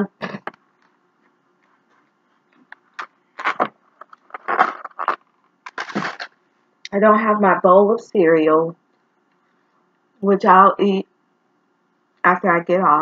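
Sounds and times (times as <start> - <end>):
styrofoam container squeaky scrapes: 3.4 - 6.3.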